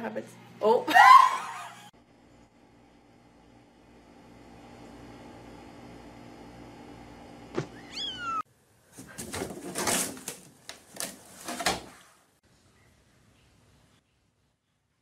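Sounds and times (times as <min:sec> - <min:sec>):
kitten meowing: 0:07.8 - 0:08.4.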